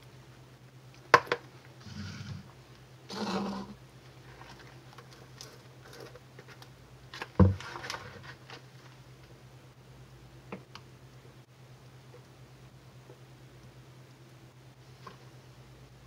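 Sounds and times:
steady low hum: 0.0 - 16.0
plastic cup scraping rustle: 3.1 - 9.0.

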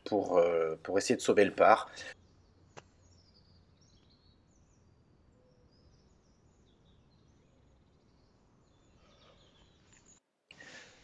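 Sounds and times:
faint high bird chirps: 2.0 - 10.2.

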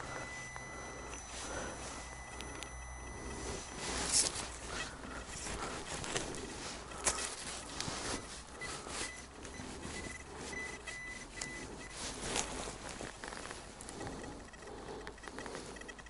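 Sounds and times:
sharp clicks: 0.0 - 12.0, 13.1 - 16.0
metal detector beeps: 0.0 - 12.9, 13.9 - 16.0
rustling and crackling: 0.0 - 16.0.

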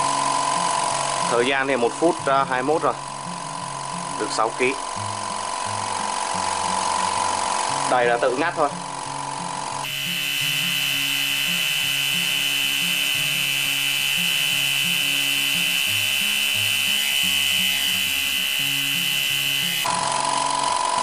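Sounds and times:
background music low notes: 0.0 - 20.1
air compressor whine: 8.9 - 21.0.

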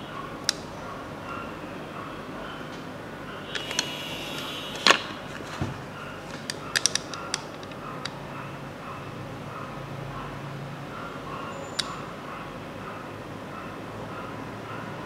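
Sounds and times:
steady background hiss: 0.0 - 14.1
plastic clicks and knocks: 4.8 - 7.8.

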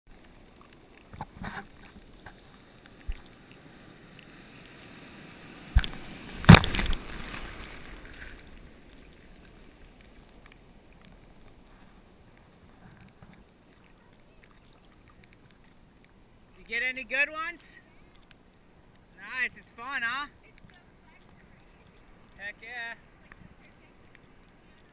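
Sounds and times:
whitewater splashing over camera: 0.5 - 15.7
breaking surf: 3.9 - 9.9.

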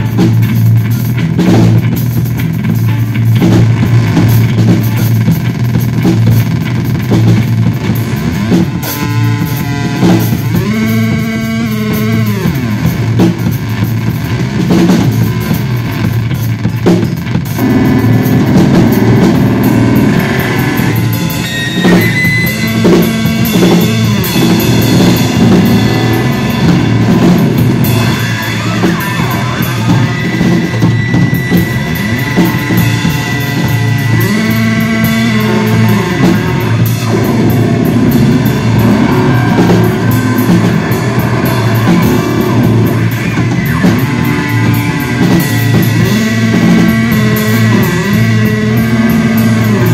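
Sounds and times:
bass guitar through effects: 0.0 - 49.9
drum kit: 0.0 - 49.9.

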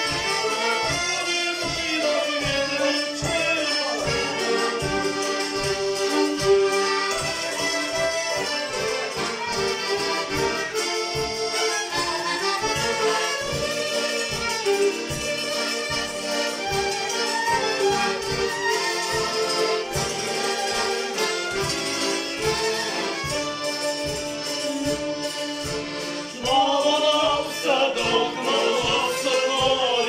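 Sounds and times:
accordion: 0.0 - 30.0
fiddle: 0.0 - 30.0
hammered dulcimer: 0.0 - 30.0.

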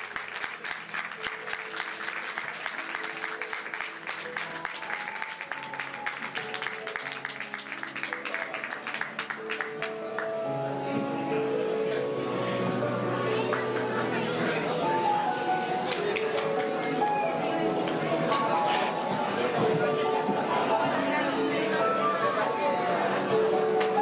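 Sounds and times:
audience applauding: 0.0 - 10.4, 13.3 - 14.3, 15.8 - 18.6
music of held notes: 2.8 - 24.0.

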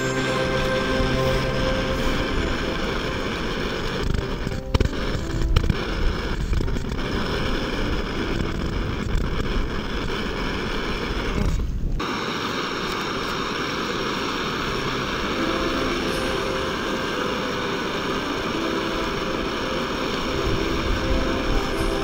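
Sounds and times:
camp stove burning hiss: 0.0 - 22.0
wind rumble on microphone: 1.0 - 12.1.

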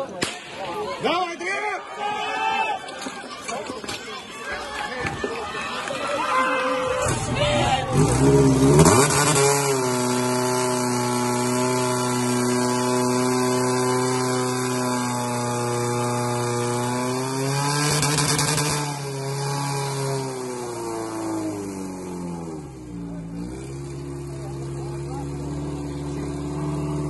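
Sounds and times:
pump petrol engine at high revs: 7.0 - 27.0.

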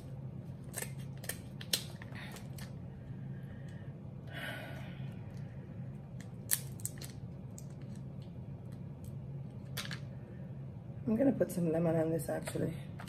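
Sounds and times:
steady low hum: 0.0 - 13.0
crab shell cracking: 6.2 - 8.2.

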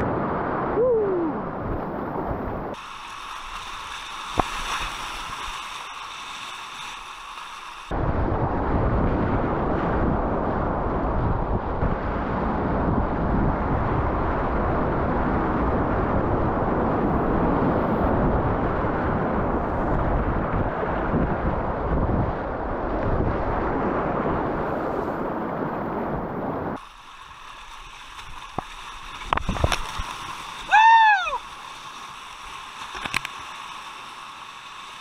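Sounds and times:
whitewater rushing and churning: 15.9 - 35.0.

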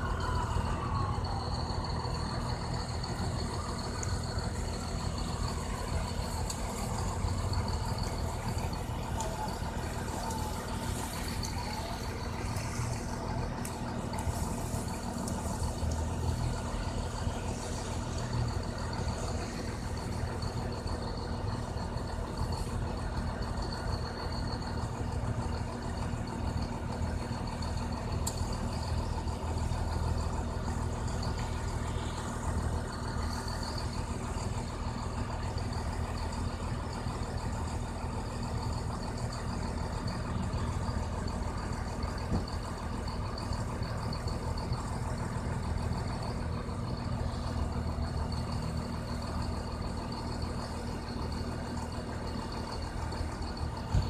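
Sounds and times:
vehicle engine idling: 0.0 - 54.0.

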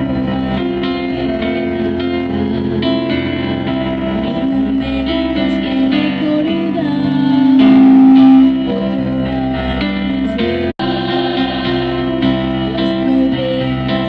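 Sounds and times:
instrumental accompaniment: 6.7 - 9.2
choir singing a carol: 7.4 - 14.0.

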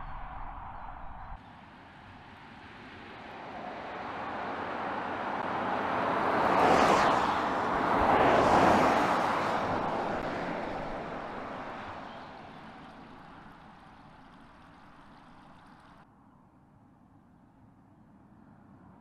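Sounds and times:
tyre noise on asphalt: 3.9 - 16.0.

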